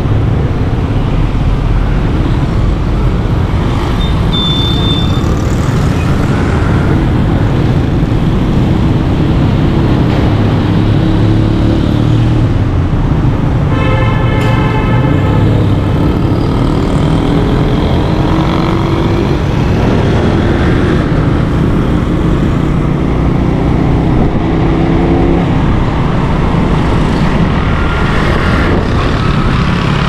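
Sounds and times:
wind noise on microphone: 15.6s - 30.0s.

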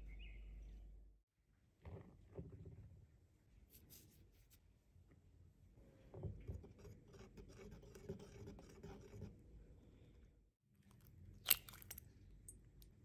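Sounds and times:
whisk scraping bowl: 7.0s - 9.4s.

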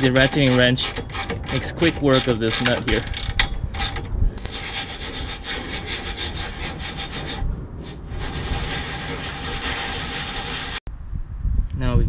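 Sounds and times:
ratcheting wrench clicking: 0.0s - 4.6s.

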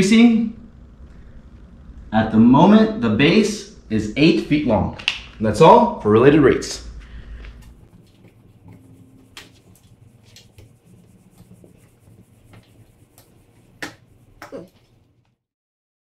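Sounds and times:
eraser rubbing on whiteboard: 7.8s - 15.1s.

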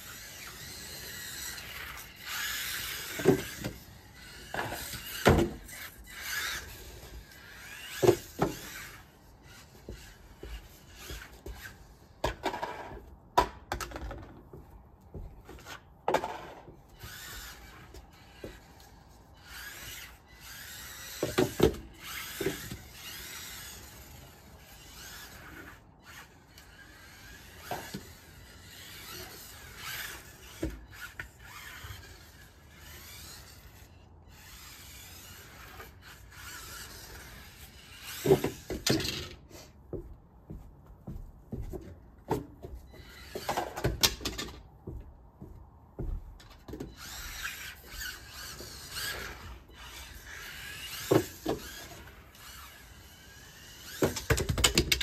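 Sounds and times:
toy car electric motor whining: 0.0s - 12.8s, 16.2s - 39.4s, 42.9s - 44.4s, 46.8s - 55.0s
toy car knocking on wood: 54.0s - 55.0s.

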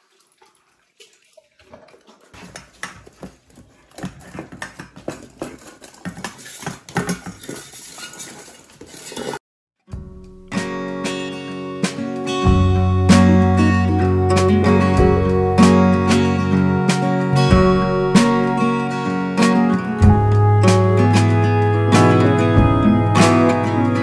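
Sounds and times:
dogs eating from metal bowls: 0.0s - 9.4s
guitar music: 9.9s - 24.0s.

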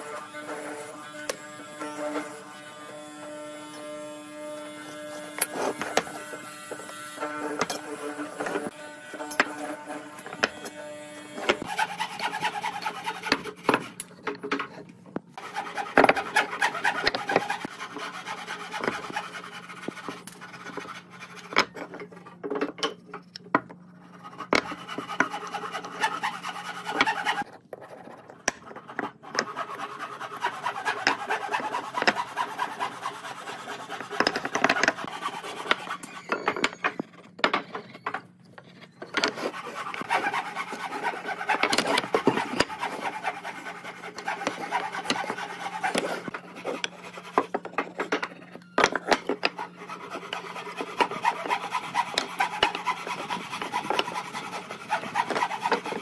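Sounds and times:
sanding wood by hand: 11.3s - 14.0s, 15.4s - 21.6s, 24.2s - 27.5s, 29.3s - 36.0s, 39.2s - 47.5s, 49.3s - 56.0s.

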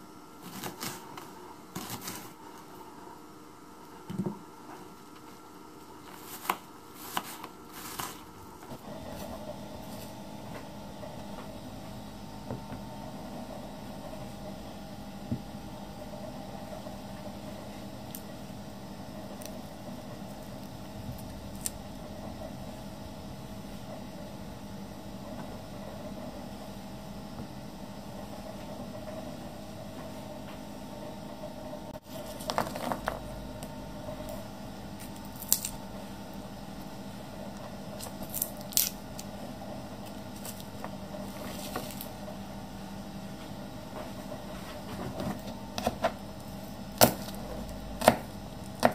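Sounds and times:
steady low hum: 0.0s - 48.9s
knife chopping on plastic board: 45.4s - 46.2s, 48.0s - 48.9s.

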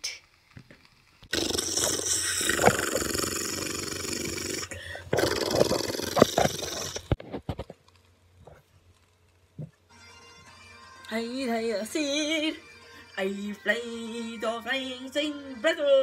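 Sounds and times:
fingers rubbing phone microphone: 1.7s - 7.8s.

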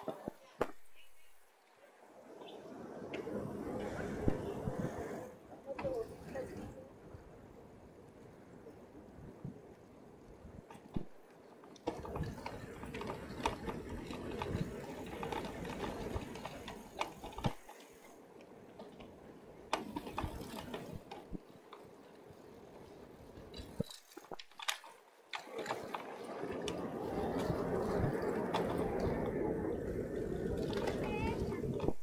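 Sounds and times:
wind rumbling on microphone: 2.2s - 21.6s, 25.4s - 32.0s
bicycle clicks and rattles: 10.6s - 32.0s.

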